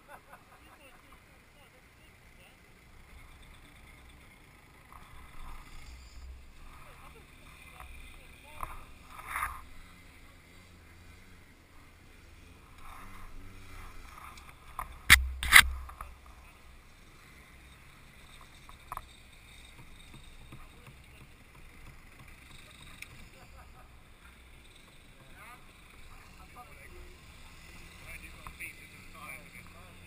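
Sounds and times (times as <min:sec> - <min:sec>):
small click: 0:14.0 - 0:16.1.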